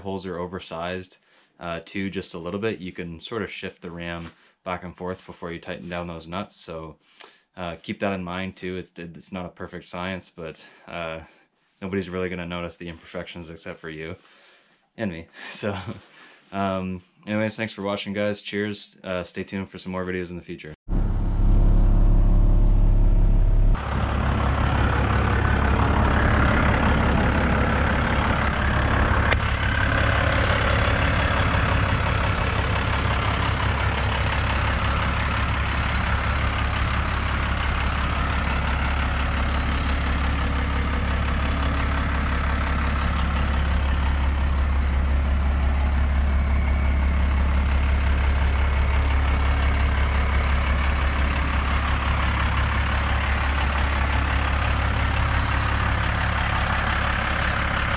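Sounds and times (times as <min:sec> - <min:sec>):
diesel engine droning: 0:20.9 - 0:57.9.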